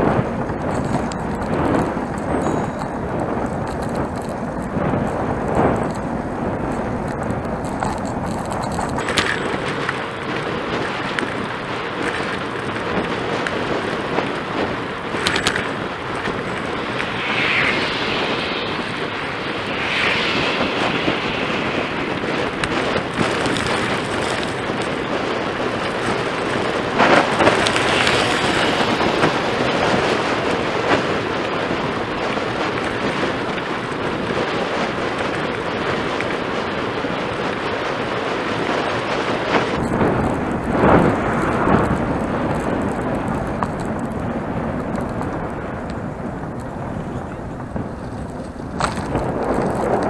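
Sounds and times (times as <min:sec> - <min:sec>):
bicycle tyres on pavement: 0:00.0 - 0:50.0
wind rumble on microphone: 0:00.0 - 0:50.0.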